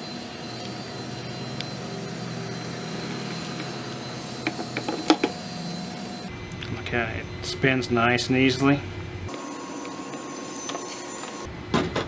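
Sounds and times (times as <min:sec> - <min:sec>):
machine hum: 0:00.0 - 0:11.8.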